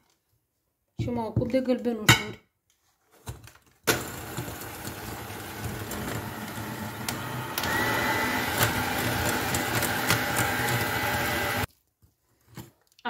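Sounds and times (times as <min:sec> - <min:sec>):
electric hand mixer whisking: 0:03.9 - 0:11.7
mixer clicks: 0:03.9 - 0:11.7.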